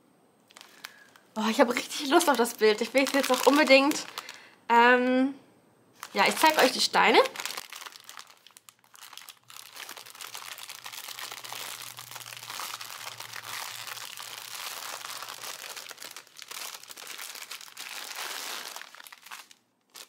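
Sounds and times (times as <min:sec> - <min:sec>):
plastic packaging crinkling: 0:00.5 - 0:04.6, 0:06.0 - 0:20.0.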